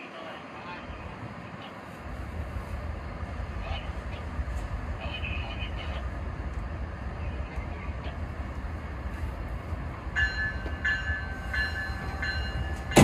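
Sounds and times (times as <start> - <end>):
locomotive rumbling: 0.0 - 13.0
locomotive bell ringing: 10.1 - 13.0.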